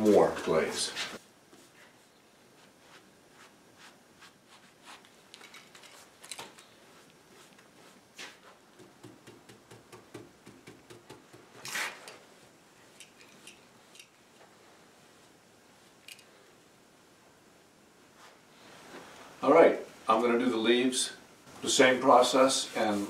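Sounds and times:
brush strokes on wood: 0:00.0 - 0:05.2, 0:06.7 - 0:08.7, 0:22.4 - 0:23.0.

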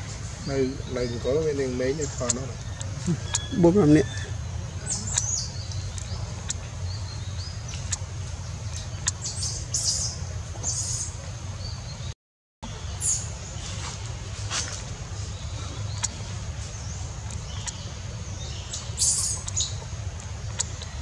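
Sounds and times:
steady low rumble: 0:00.0 - 0:12.1, 0:12.7 - 0:21.0
high-pitched chirps and squeaks: 0:02.1 - 0:06.6.

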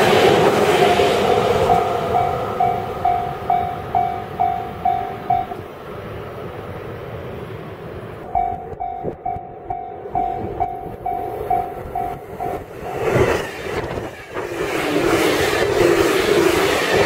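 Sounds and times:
electric train passing: 0:00.0 - 0:17.0
level-crossing warning bell dinging: 0:01.3 - 0:05.7, 0:08.2 - 0:13.0
train wheels clattering over rails: 0:08.3 - 0:17.0.

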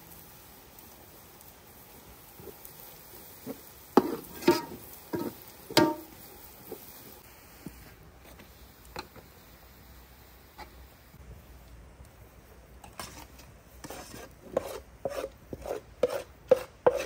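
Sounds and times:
spoon clinking metal pan: 0:04.0 - 0:06.2.

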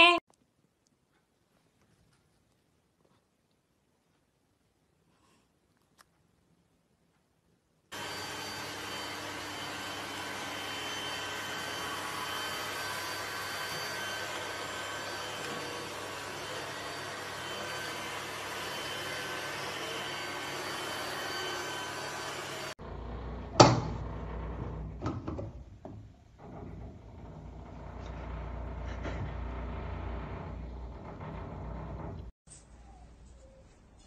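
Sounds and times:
robot vacuum whirring: 0:08.0 - 0:23.2.

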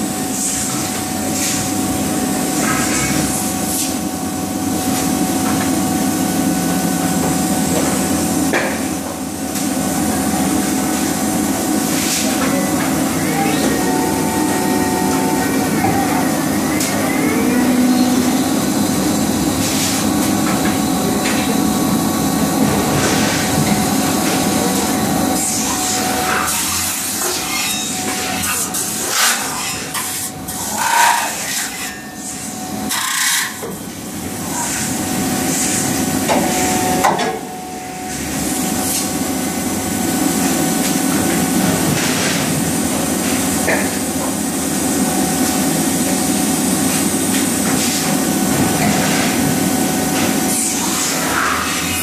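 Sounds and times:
machine humming with constant tone: 0:00.0 - 0:52.0.

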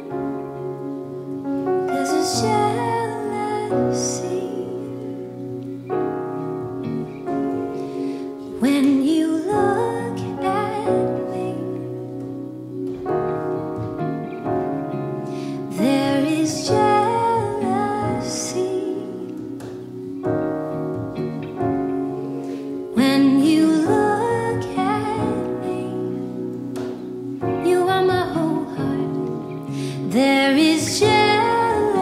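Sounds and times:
sustained keyboard chords: 0:00.0 - 0:32.0
woman singing: 0:01.9 - 0:05.4, 0:08.5 - 0:12.4, 0:15.4 - 0:19.8, 0:22.9 - 0:26.6, 0:27.4 - 0:32.0.

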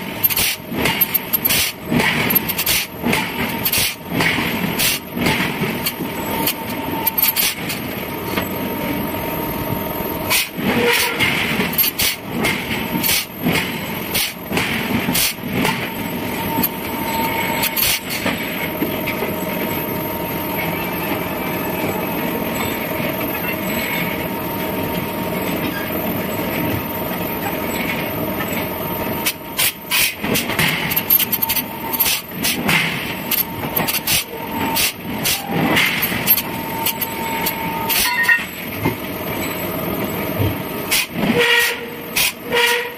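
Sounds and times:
machinery running: 0:00.0 - 0:42.9.

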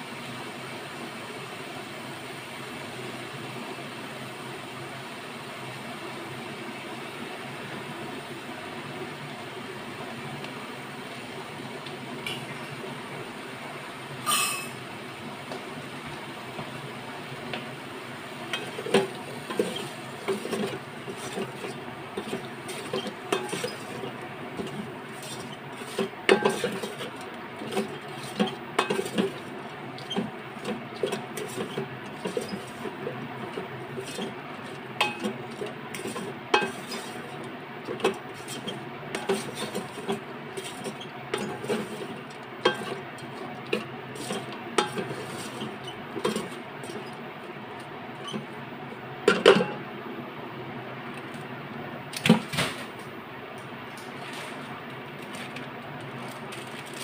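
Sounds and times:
wooden spatula scraping metal pot: 0:18.6 - 0:47.2.

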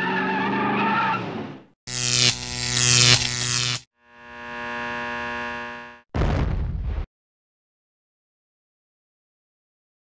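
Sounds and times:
tire squeal: 0:00.0 - 0:01.4
loud electric buzz: 0:01.9 - 0:06.1.

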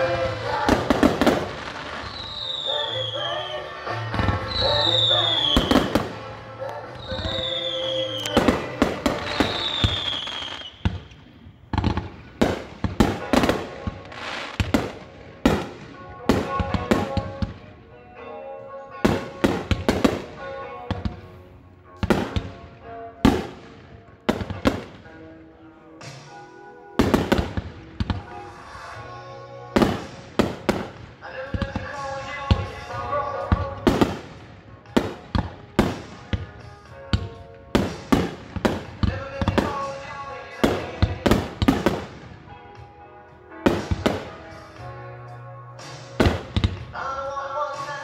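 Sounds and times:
fireworks bangs and crackles: 0:00.0 - 0:18.3, 0:18.9 - 0:25.3, 0:26.0 - 0:26.4, 0:27.0 - 0:29.1, 0:29.7 - 0:45.0, 0:45.8 - 0:47.0
music: 0:00.0 - 0:48.0.

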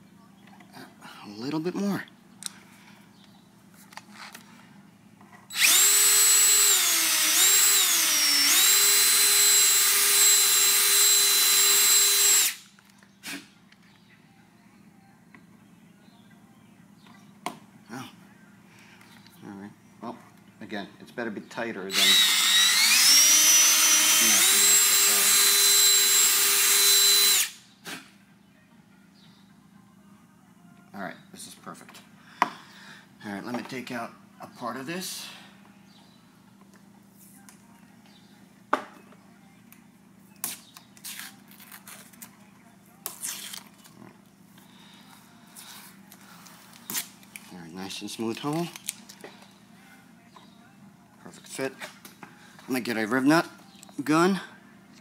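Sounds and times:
cordless drill whining: 0:05.5 - 0:12.6, 0:21.9 - 0:27.6.

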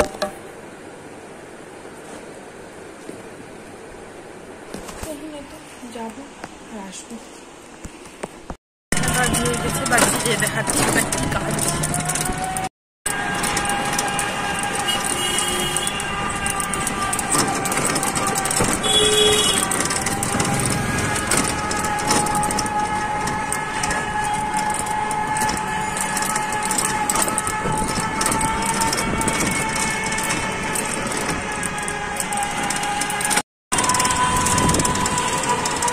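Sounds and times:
road and traffic noise: 0:00.0 - 0:35.9
electric vehicle whining drone: 0:09.1 - 0:35.9
horn beep: 0:18.8 - 0:19.7.

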